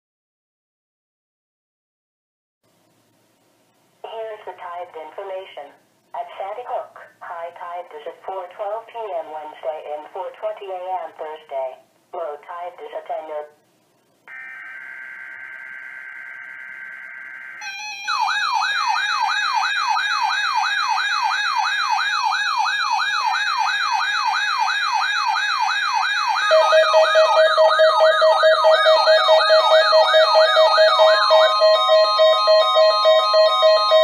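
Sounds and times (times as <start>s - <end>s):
screeching data tone: 14.3s - 18.4s
warbling siren-like alert tone: 14.3s - 34.0s.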